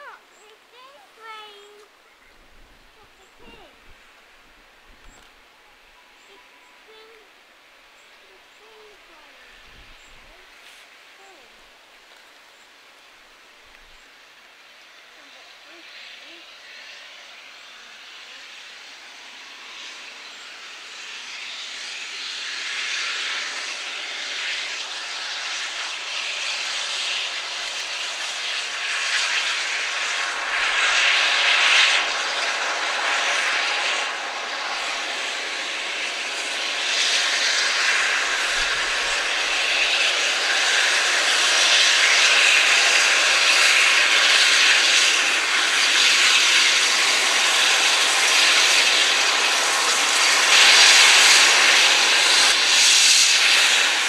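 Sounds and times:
steam locomotive working hard: 0.0 - 54.0.

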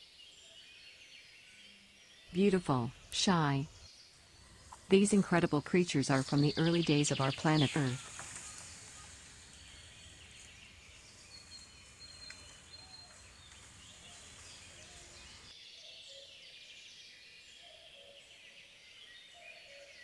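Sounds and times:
distant bird calls: 2.3 - 15.5
insects hissing: 3.0 - 15.5.

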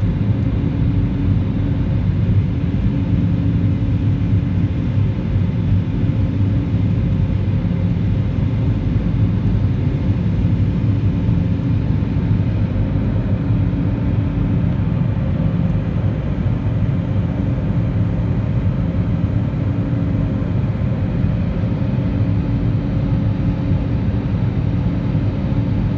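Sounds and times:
jet engines heard from cabin: 0.0 - 25.9.

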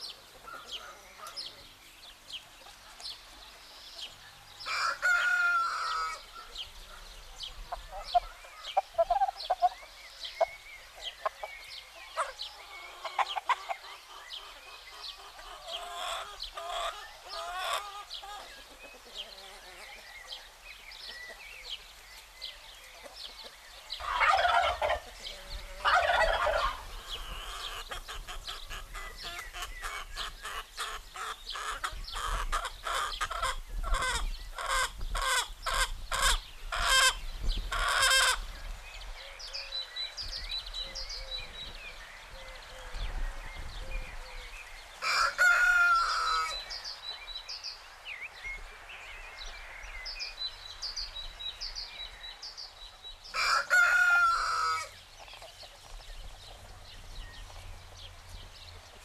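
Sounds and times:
chickens clucking: 0.0 - 39.6, 40.3 - 47.1, 52.9 - 59.0
rooster crowing: 4.7 - 6.2, 45.0 - 46.6, 53.3 - 54.9.

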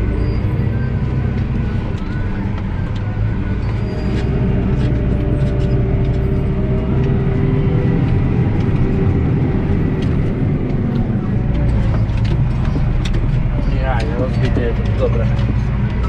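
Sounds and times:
tractor diesel engine running: 0.0 - 16.0.

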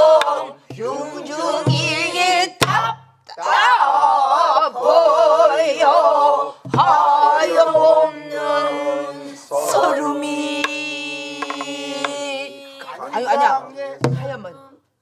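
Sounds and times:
person singing with vibrato: 4.6 - 15.0
drum stick knocks: 11.4 - 12.2.

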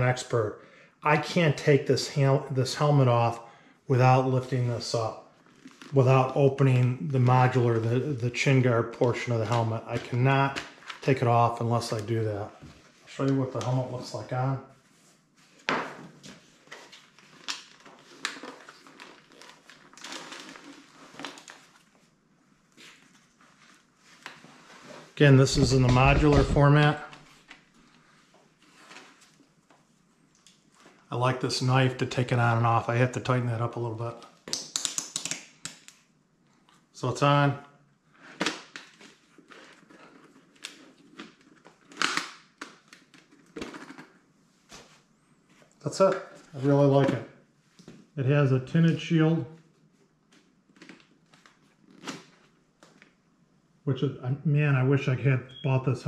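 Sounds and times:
helmet shell rustling and scraping: 5.0 - 8.0, 9.0 - 31.1, 38.2 - 42.3, 49.6 - 53.2.

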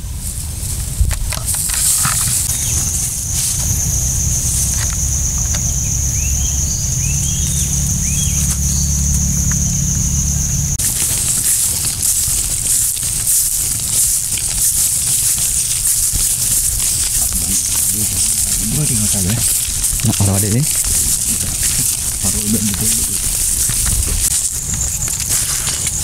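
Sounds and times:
low rumble: 0.0 - 13.0
footsteps rustling through grass: 0.0 - 26.0
insect drone: 0.0 - 26.0
bird chirps: 2.4 - 10.8.

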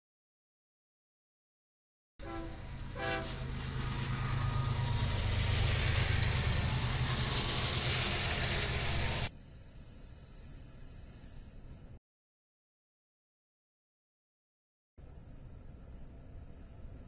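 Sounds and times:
train horn blasts: 2.2 - 5.4
high-pitched wheel ring: 2.2 - 9.3
distant rail-yard background: 2.2 - 12.0
train engines and wheels rumbling: 2.2 - 12.0, 15.0 - 17.0.

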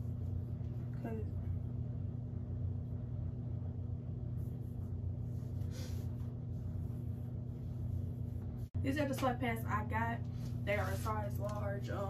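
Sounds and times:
low room hum: 0.0 - 12.0
fabric rustle: 10.3 - 12.0.

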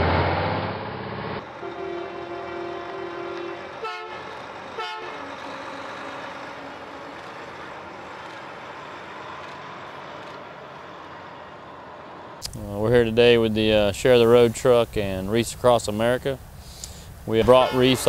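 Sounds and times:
outdoor traffic noise: 0.0 - 18.0
vehicle horn blasts: 1.5 - 5.3, 17.4 - 18.0.

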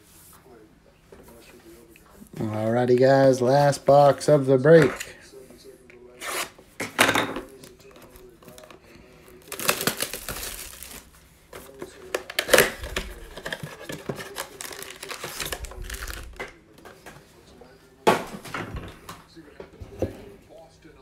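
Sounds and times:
foil card packs crinkling: 7.6 - 16.5
plastic wrap crinkling and tearing: 7.6 - 16.6.

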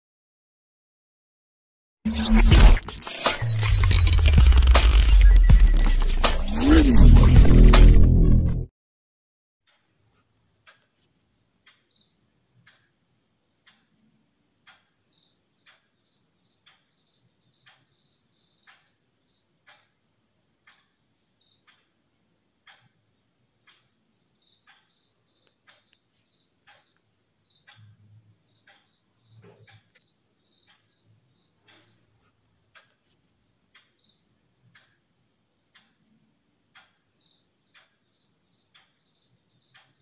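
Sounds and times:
faint regular ticking: 9.7 - 40.0.

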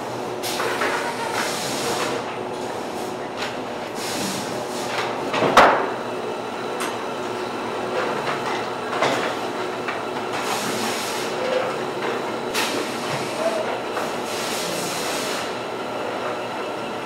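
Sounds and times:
conveyor machinery clattering: 0.0 - 17.0.

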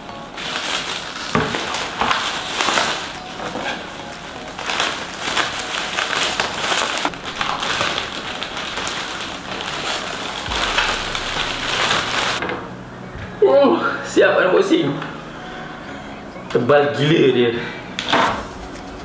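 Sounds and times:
bubble wrap crinkling: 0.4 - 12.4.

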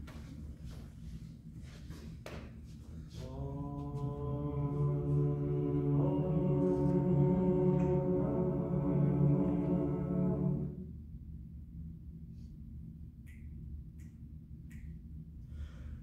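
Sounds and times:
male choir singing a cappella: 3.1 - 10.8.

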